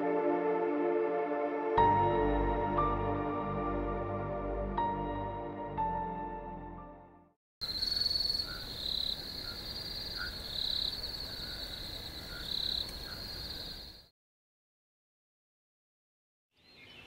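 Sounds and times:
soft ambient music: 0.0 - 7.2
crickets chirping: 7.6 - 14.1.

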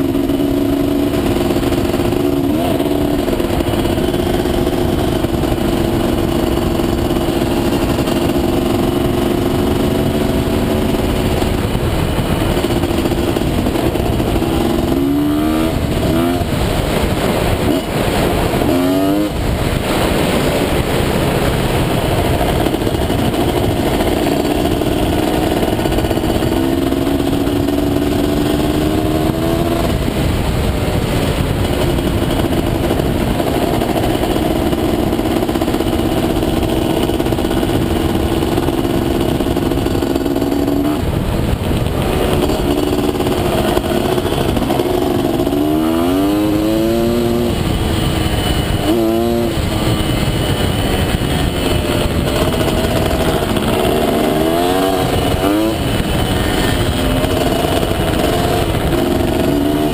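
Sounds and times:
two-stroke engine revving: 0.0 - 59.9
wind noise on microphone: 0.0 - 59.9.

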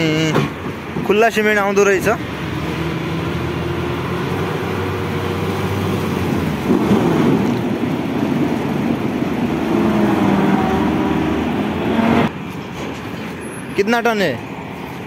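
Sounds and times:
diesel truck engine revving: 1.9 - 12.4.

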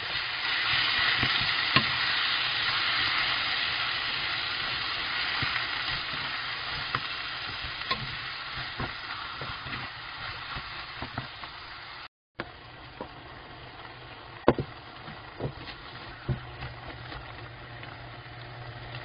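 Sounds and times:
food sizzling in a pan: 0.0 - 12.1.

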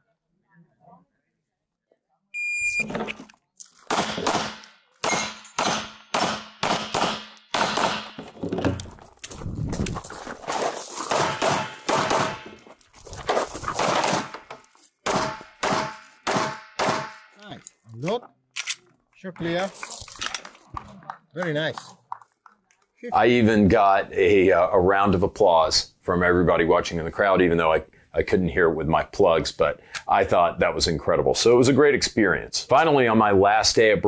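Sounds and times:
shot timer beep: 2.4 - 2.9
pistol firing rapid shots: 3.9 - 8.2, 11.1 - 12.5, 15.1 - 17.2.

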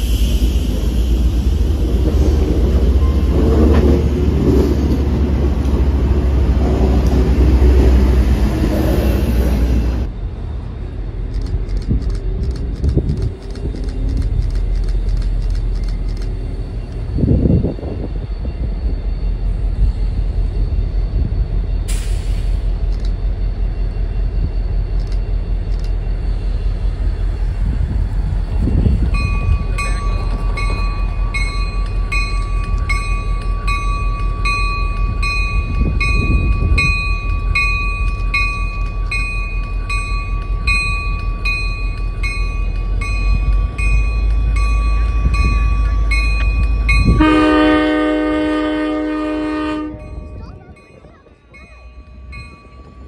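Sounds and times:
street traffic: 0.0 - 17.6, 24.9 - 53.0
train coaches rolling past: 0.0 - 53.0
diesel locomotive idling rumble: 19.1 - 53.0.

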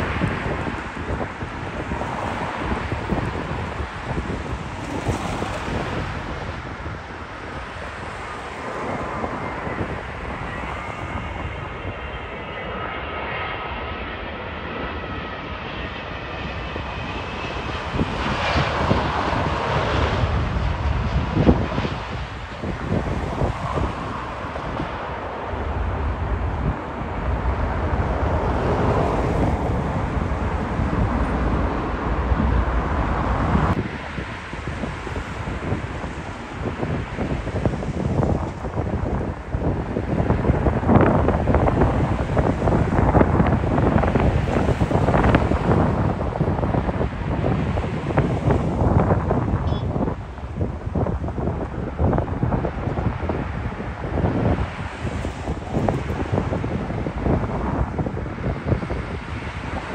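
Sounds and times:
jet engines rumbling: 0.0 - 59.9
wind buffeting microphone: 0.0 - 59.9
faint engine whine: 5.7 - 48.6.

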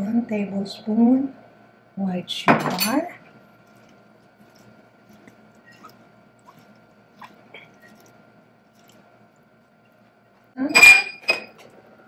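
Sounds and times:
faint wet squishes: 3.4 - 10.6.

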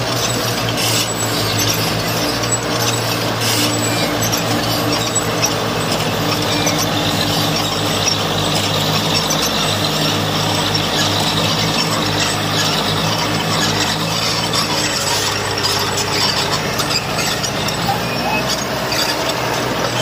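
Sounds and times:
diesel engine drone: 0.0 - 20.0.

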